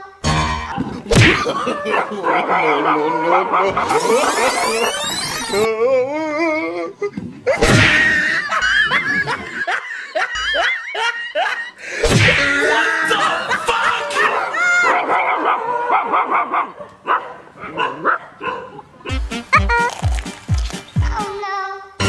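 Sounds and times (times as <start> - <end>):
canned laughter and giggling: 1.1 - 15.0, 19.1 - 20.0.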